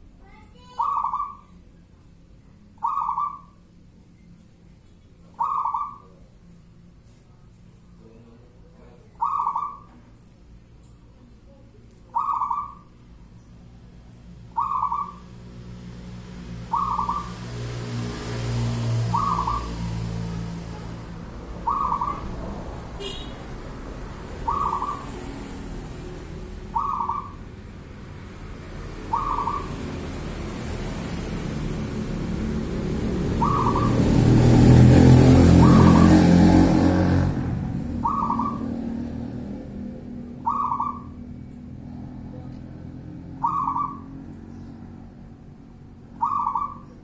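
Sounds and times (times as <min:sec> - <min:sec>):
dove cooing: 0:00.6 - 0:01.5, 0:02.8 - 0:03.6, 0:05.3 - 0:06.2, 0:09.1 - 0:10.0, 0:12.1 - 0:12.9, 0:14.5 - 0:15.4, 0:16.6 - 0:17.6, 0:18.4 - 0:20.9, 0:21.6 - 0:22.6, 0:24.4 - 0:25.5, 0:26.6 - 0:27.5, 0:29.0 - 0:30.2, 0:33.3 - 0:34.2, 0:35.4 - 0:36.7, 0:37.9 - 0:38.9, 0:40.4 - 0:41.3, 0:43.3 - 0:44.2, 0:46.2 - 0:47.0.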